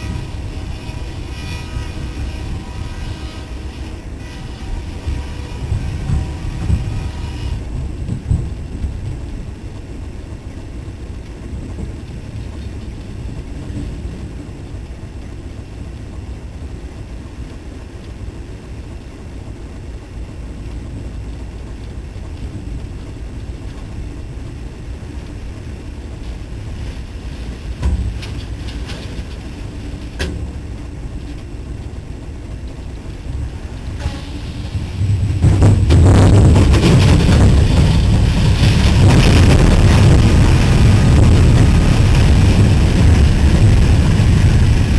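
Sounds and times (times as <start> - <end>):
diesel locomotive rumble: 0.0 - 44.9
wind buffeting microphone: 0.0 - 44.9
sharp knocks: 27.8 - 29.0.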